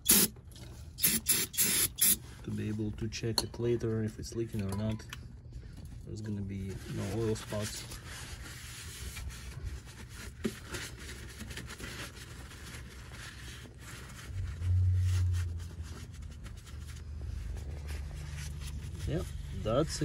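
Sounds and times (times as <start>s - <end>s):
paper towel rubbing and rustling: 6.6s - 20.0s.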